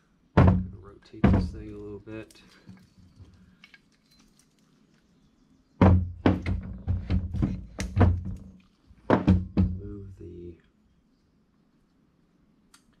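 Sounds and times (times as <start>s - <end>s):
heavy thunks of engine case handled: 5.8s - 9.8s.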